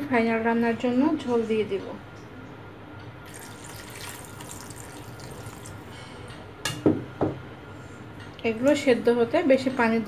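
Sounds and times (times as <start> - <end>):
water pouring into a pan: 3.2 - 5.9.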